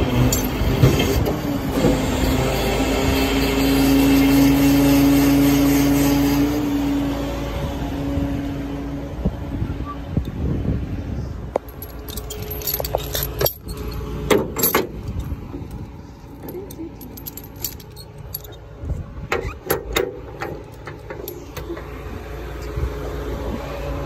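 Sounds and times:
steel chains clinking and rattling: 0:00.1 - 0:01.2, 0:11.6 - 0:21.8
lorry engine running: 0:11.6 - 0:24.0.

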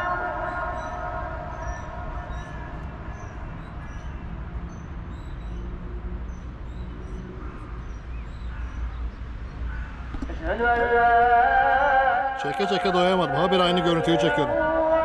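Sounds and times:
bird chirps: 0:00.0 - 0:10.5
low city rumble: 0:00.0 - 0:15.0.

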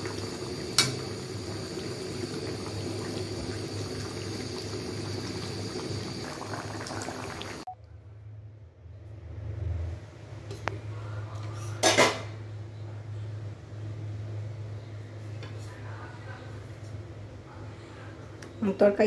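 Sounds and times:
curry bubbling in a pan: 0:00.0 - 0:07.7.

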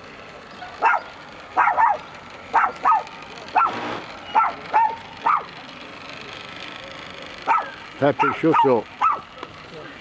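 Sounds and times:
dog barking: 0:07.5 - 0:09.2.

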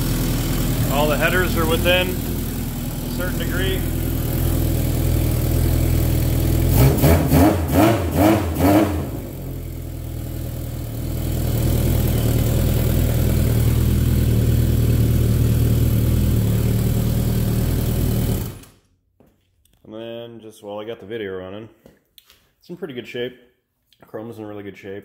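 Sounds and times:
motorcycle engine idling and revving: 0:00.0 - 0:18.8.

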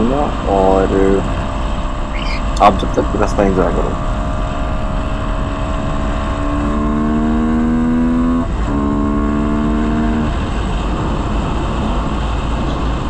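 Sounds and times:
wind and road rumble: 0:00.0 - 0:13.0
motorcycle engine under throttle: 0:03.7 - 0:13.0.

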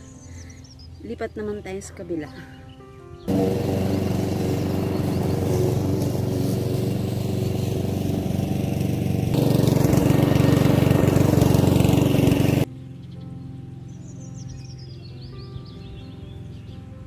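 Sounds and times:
lawn mower running: 0:03.3 - 0:12.7.

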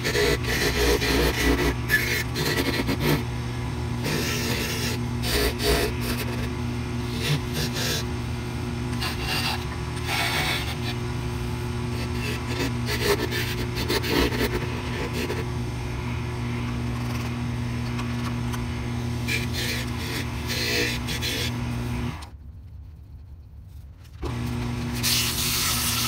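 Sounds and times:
chisel rasping on spinning wood: 0:00.0 - 0:03.4, 0:04.0 - 0:08.2, 0:08.9 - 0:15.5, 0:19.2 - 0:22.2
wood lathe humming: 0:00.0 - 0:22.3.

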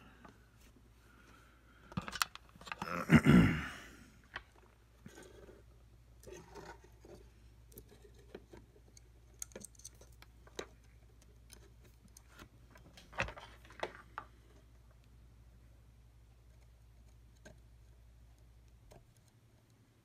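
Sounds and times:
small plastic clicks and rustles: 0:01.9 - 0:02.9, 0:06.2 - 0:15.2.

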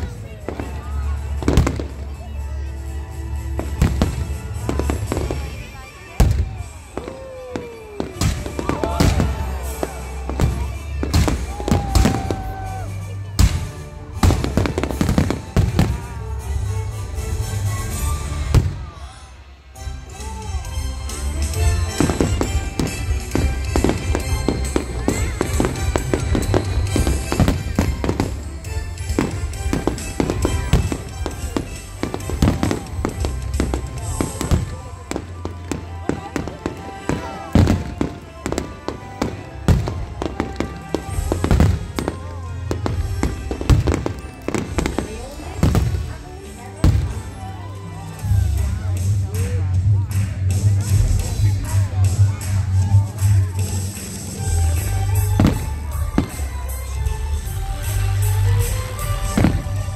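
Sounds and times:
music: 0:00.0 - 0:59.9
fireworks bursting: 0:03.4 - 0:16.2, 0:21.5 - 0:47.4, 0:53.6 - 0:59.9.

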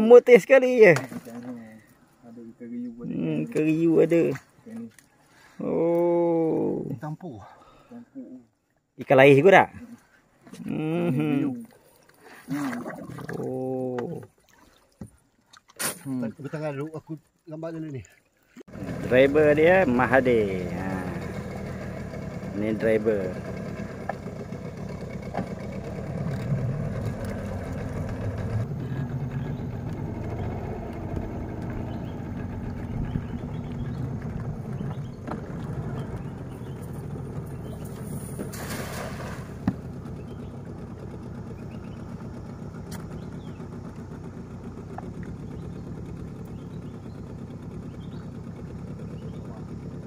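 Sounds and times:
outboard motor running: 0:00.7 - 0:07.0, 0:09.7 - 0:17.0, 0:18.6 - 0:50.0
cast net splashing on water: 0:12.2 - 0:13.6, 0:14.2 - 0:16.2, 0:38.3 - 0:39.6.

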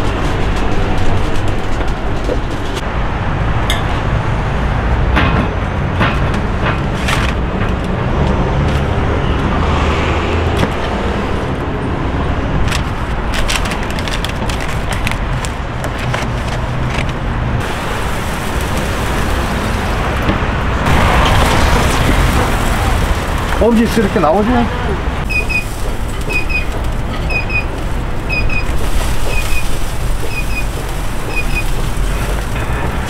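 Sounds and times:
paper rustling: 0:12.6 - 0:19.6, 0:25.4 - 0:33.0
steady low rumble: 0:17.3 - 0:33.0.

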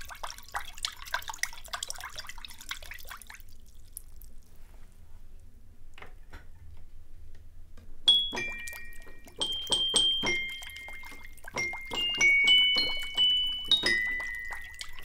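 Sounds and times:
toy piano notes: 0:08.1 - 0:15.0.

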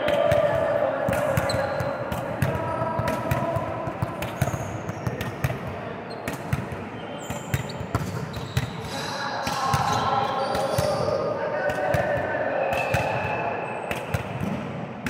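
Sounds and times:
volleyballs thudding: 0:00.0 - 0:15.0
shoe squeaks: 0:06.1 - 0:06.4, 0:07.0 - 0:09.1, 0:09.8 - 0:11.2.

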